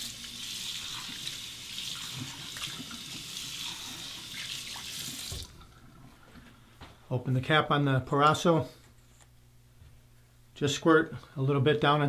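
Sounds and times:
tap water running into a bowl: 0.0s - 5.6s.

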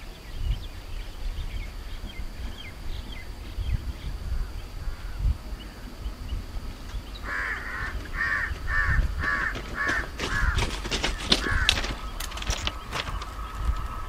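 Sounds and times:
sharp clicks: 6.8s - 14.0s
crow cawing: 7.2s - 14.0s.

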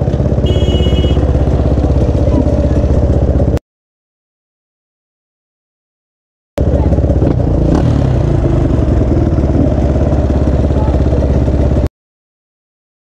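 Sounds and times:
dirt bike engine idling: 0.0s - 3.6s, 6.6s - 11.9s.

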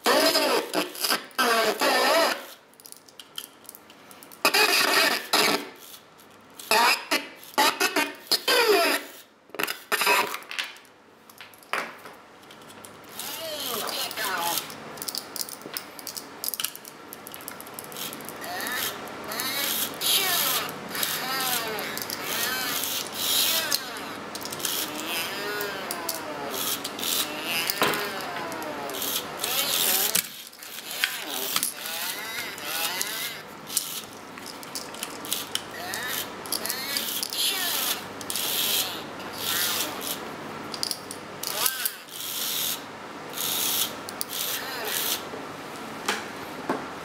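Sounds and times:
toy motor and gears whirring: 0.0s - 10.5s, 13.0s - 45.3s
distorted electronic toy voice: 13.2s - 14.7s, 18.4s - 30.2s, 30.8s - 33.4s, 35.8s - 40.1s, 44.4s - 45.2s.

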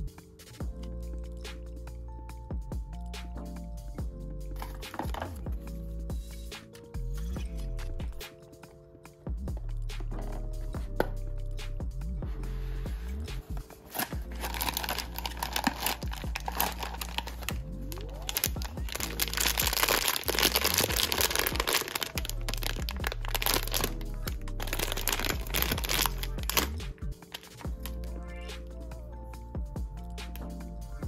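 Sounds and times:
background music: 0.0s - 31.0s
foil bag crinkling: 13.8s - 26.7s, 27.3s - 28.0s.

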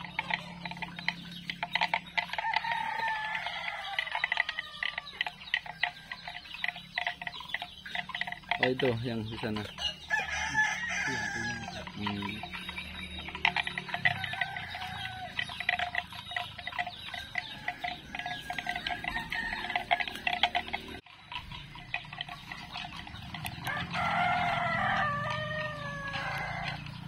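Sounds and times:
chickens clucking: 0.0s - 27.0s
rooster crowing: 2.0s - 6.5s, 9.8s - 12.0s, 13.6s - 15.9s, 16.9s - 20.8s, 23.5s - 27.0s.

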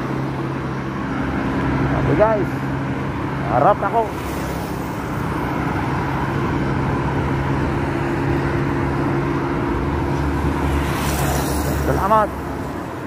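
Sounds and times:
road traffic noise: 0.0s - 13.0s
vehicle engine running: 0.0s - 13.0s.

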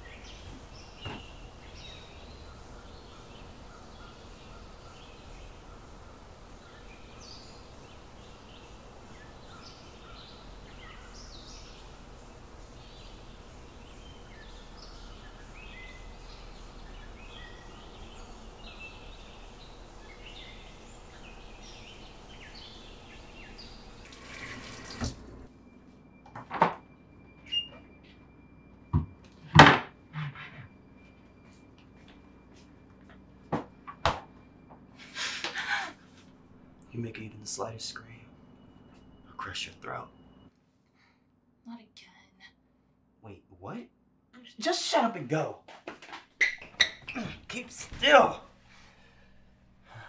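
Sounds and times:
birds chirping: 0.0s - 25.5s, 27.0s - 28.9s, 34.4s - 40.5s, 46.4s - 50.0s
steady outdoor hiss: 0.0s - 26.2s, 34.4s - 40.5s, 47.1s - 50.0s.

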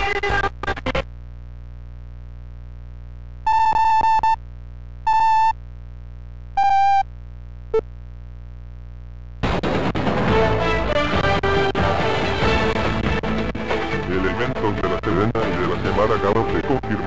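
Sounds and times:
low electrical hum: 0.0s - 10.1s
music: 9.5s - 17.0s.

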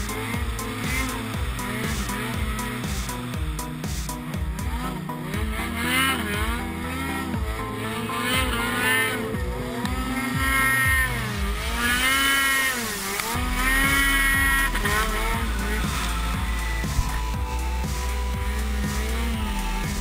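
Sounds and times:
snowmobile engine revving: 0.0s - 20.0s.

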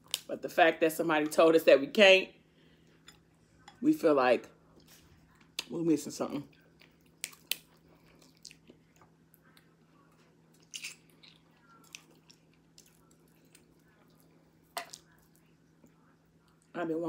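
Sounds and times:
chewing: 6.5s - 16.7s
crab shells snapping: 7.2s - 7.7s.

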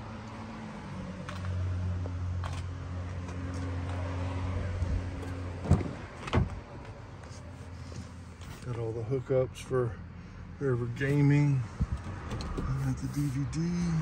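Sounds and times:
low vehicle hum: 0.0s - 14.0s
car door clicks: 11.9s - 12.8s.

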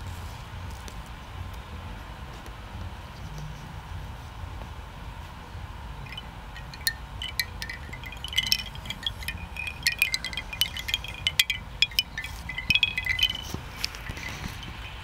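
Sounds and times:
bamboo wind chime clacking: 6.1s - 15.0s.

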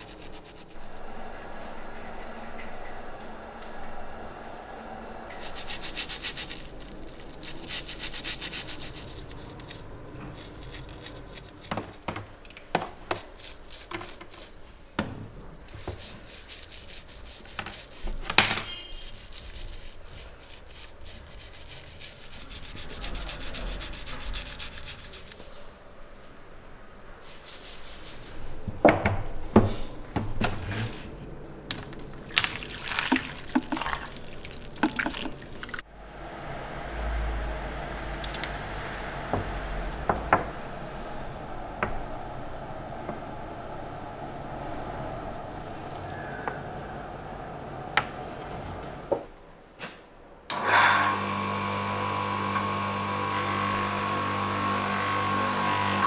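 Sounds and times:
scraping and rubbing: 0.0s - 3.2s, 5.3s - 26.4s, 27.2s - 28.8s, 30.6s - 35.8s.

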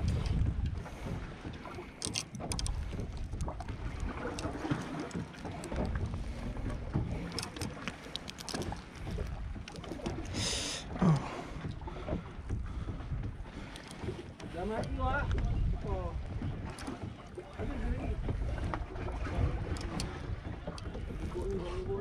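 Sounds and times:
water slapping boat hull: 0.0s - 22.0s
wind rumbling on microphone: 0.0s - 22.0s
small clicks: 1.8s - 6.1s, 7.0s - 10.2s.

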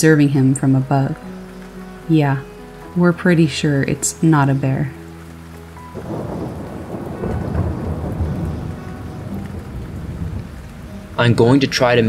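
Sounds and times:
steady rain: 0.0s - 12.0s
rolling thunder: 5.9s - 12.0s.

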